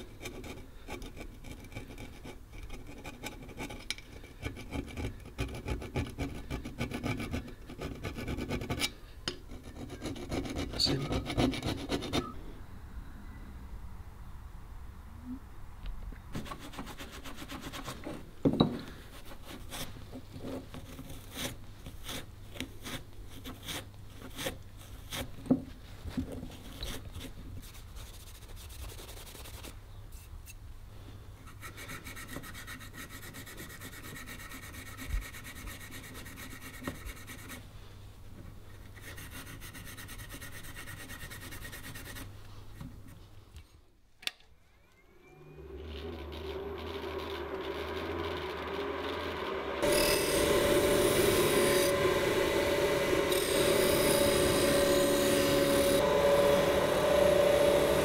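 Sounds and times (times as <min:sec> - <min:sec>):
abrasive pad scrubbing metal: 0:46.2 - 0:58.0.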